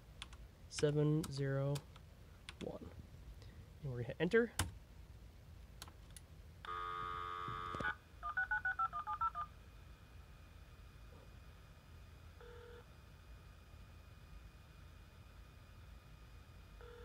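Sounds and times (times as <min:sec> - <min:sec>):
dial tone: 0:06.7 - 0:09.5, 0:12.4 - 0:12.9, 0:16.8 - 0:17.0
touch-tone dialing beeps: 0:07.8 - 0:09.5.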